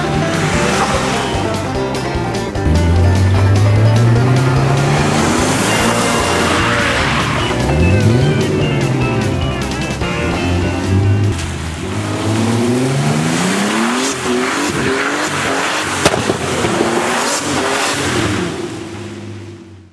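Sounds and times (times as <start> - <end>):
car engine revving: 0.0 - 19.9
exhaust backfire bang: 15.8 - 19.5.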